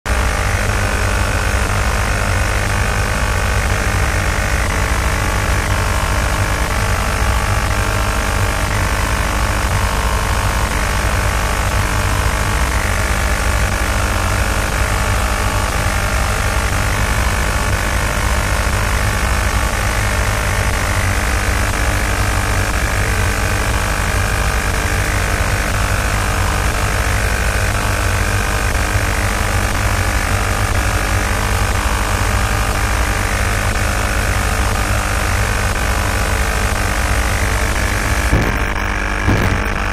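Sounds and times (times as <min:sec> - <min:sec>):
constant tonal hum: 0:00.1 - 0:39.9
deep rumble of vibration: 0:00.1 - 0:39.9.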